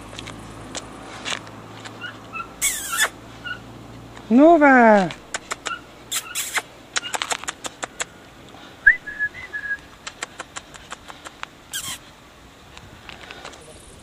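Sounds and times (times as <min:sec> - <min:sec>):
mouth clicks and kissing noises: 0:01.8 - 0:03.2, 0:05.2 - 0:12.1
high whistle-like squeak: 0:02.6 - 0:03.1.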